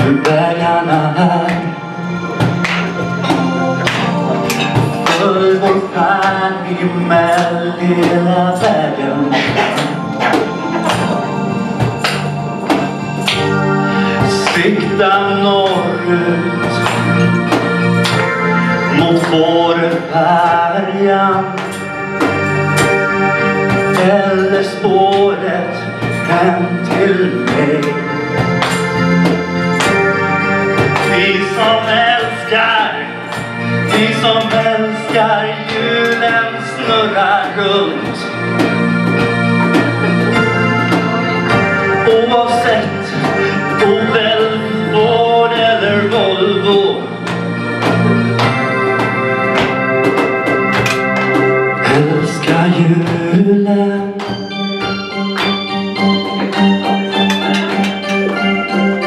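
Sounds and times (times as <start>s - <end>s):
person singing: 0.0s - 48.8s, 51.8s - 59.0s
electronic organ chords: 0.0s - 59.0s
held keyboard notes: 0.0s - 59.0s
steady drum beat: 0.0s - 59.0s
drum hits: 2.3s - 6.5s, 7.1s - 13.6s.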